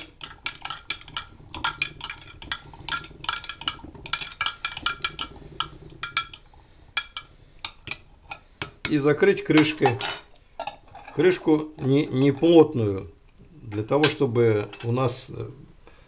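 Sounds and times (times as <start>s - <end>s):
utensil clinking against glass jar: 0.0s - 8.8s.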